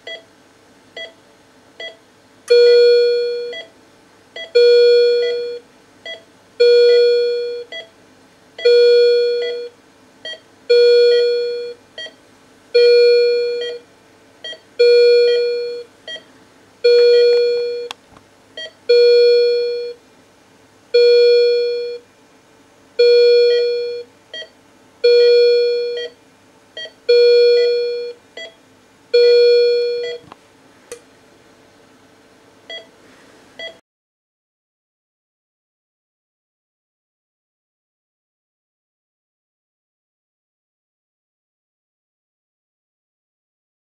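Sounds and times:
patient monitor alarm tone: 0:02.5 - 0:03.7, 0:04.4 - 0:07.9, 0:08.6 - 0:12.1, 0:12.8 - 0:13.8, 0:14.5 - 0:15.9, 0:16.8 - 0:17.9, 0:18.9 - 0:20.0, 0:21.0 - 0:22.0, 0:23.0 - 0:26.2, 0:26.8 - 0:28.5, 0:29.2 - 0:30.2.

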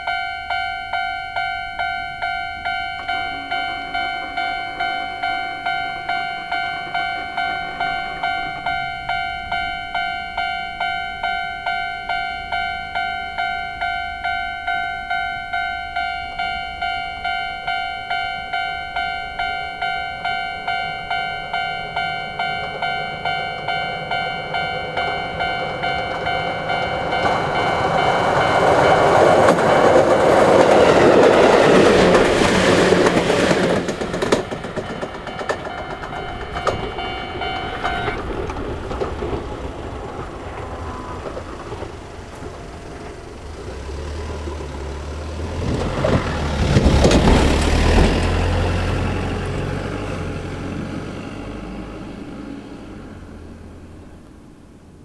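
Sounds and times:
level crossing alarm dinging: 0:00.0 - 0:43.4
train rumbling past: 0:00.0 - 0:55.0.

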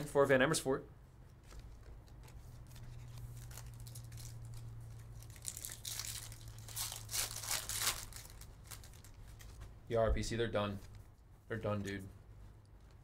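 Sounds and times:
foil wrapper crinkling and tearing: 0:02.7 - 0:09.6.

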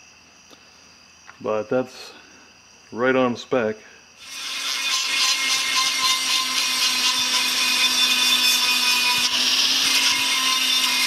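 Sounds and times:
rotary grinder whining: 0:04.2 - 0:11.0.

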